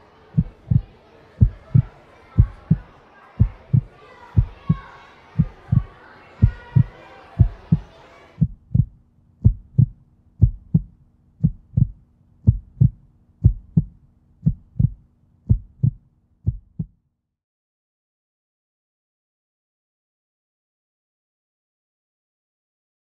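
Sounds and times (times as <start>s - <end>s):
crowd and children chattering: 0.0s - 8.4s
heartbeat thumps: 0.4s - 17.0s.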